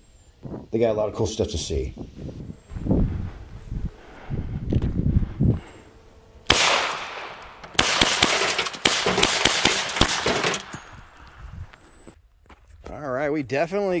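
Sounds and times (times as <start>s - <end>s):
air pistol shots: 6.5s - 10.9s.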